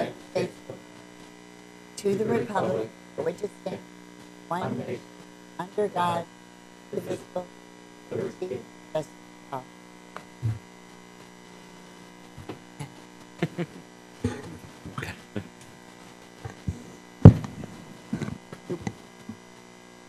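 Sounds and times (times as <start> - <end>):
knocks and shuffling of people sitting: 0.0 - 1.1, 2.0 - 3.9, 4.5 - 5.1, 7.0 - 7.4, 8.1 - 8.7, 10.2 - 11.3, 12.4 - 15.7, 16.4 - 19.4
electrical mains hum: 0.0 - 20.0
loud thump: 17.2 - 17.8.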